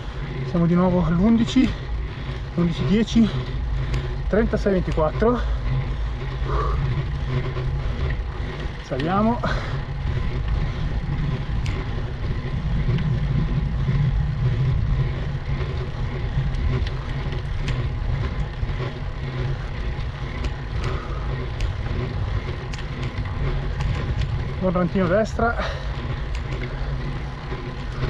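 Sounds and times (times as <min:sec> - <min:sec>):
wind and road noise rumble: 0:00.0 - 0:28.0
faint sharp clicks: 0:20.4 - 0:21.8.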